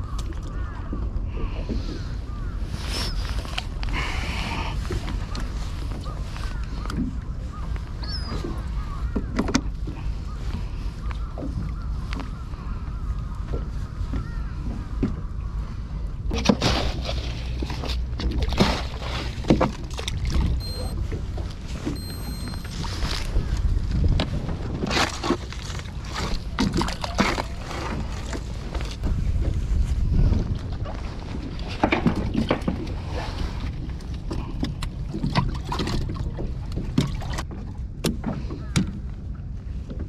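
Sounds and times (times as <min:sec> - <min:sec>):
knocks of gear handled in boat: 0:04.8 - 0:15.5, 0:16.3 - 0:22.7, 0:23.4 - 0:40.0
low steady rumble: 0:08.6 - 0:40.0.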